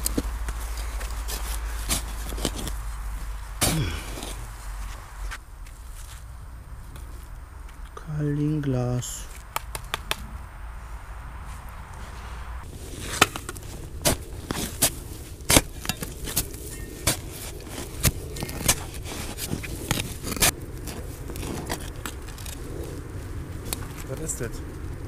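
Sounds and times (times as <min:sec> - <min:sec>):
shovel scraping and striking earth: 0:00.0 - 0:06.2, 0:12.0 - 0:23.0.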